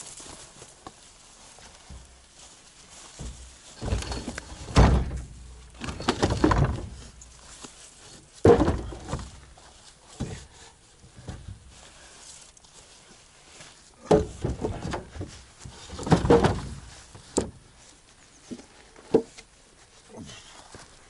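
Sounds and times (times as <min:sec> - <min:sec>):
heavy thuds and knocks: 0:03.1 - 0:07.4, 0:08.3 - 0:11.8, 0:14.0 - 0:17.6.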